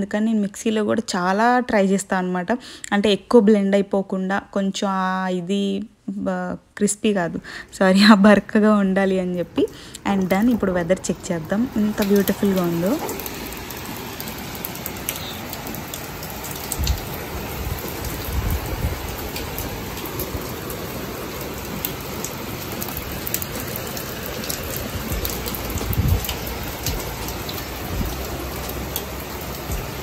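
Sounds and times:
heavy rain on wooden deck: 9.7 - 30.0
low thumps: 25.0 - 30.0.

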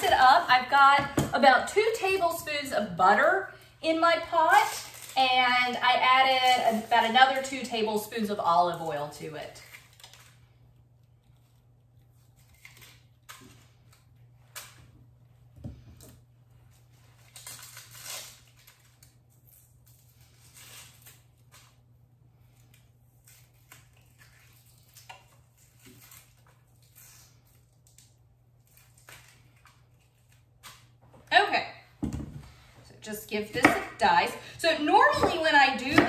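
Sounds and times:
onion skin crinkling: 1.4 - 14.9, 16.7 - 31.3.

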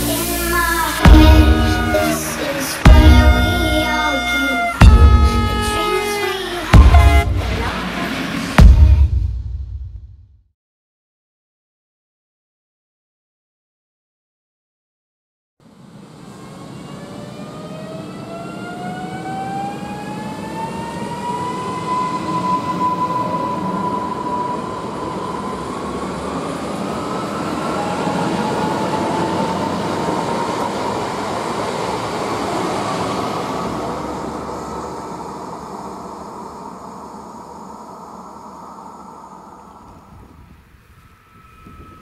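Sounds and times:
electric train motors whining: 0.0 - 8.5, 15.7 - 42.0
wheel and rail noise: 15.6 - 42.0.

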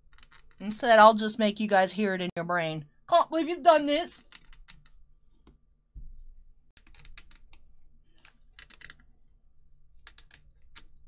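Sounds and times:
plastic parts clicking and tapping: 6.8 - 9.1, 10.0 - 11.0.

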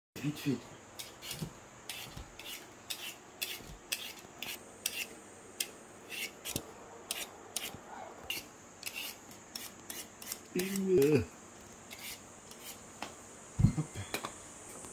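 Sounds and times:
peeler scraping potato skin: 0.4 - 5.1, 6.1 - 11.2, 11.9 - 12.8.

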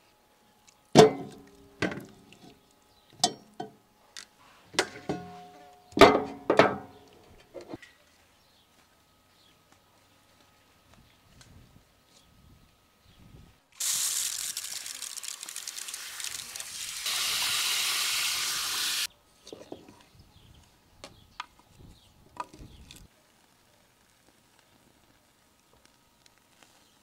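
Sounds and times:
hose nozzle spraying water: 13.8 - 19.1.

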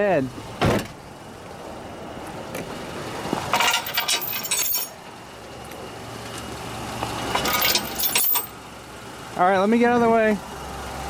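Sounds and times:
steel chain rattling and clinking: 3.5 - 5.0, 7.3 - 8.6.

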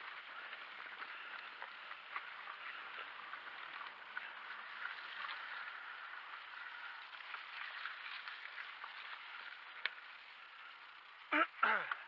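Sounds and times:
bike tyres rolling on mud: 0.0 - 12.0.

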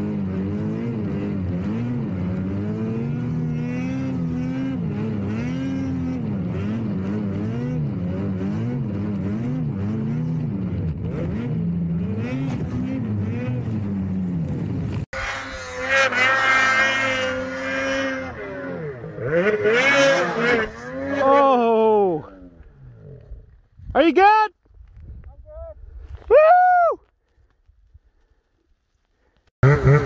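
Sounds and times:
snowmobile engine revving: 0.0 - 23.4, 29.6 - 30.0.

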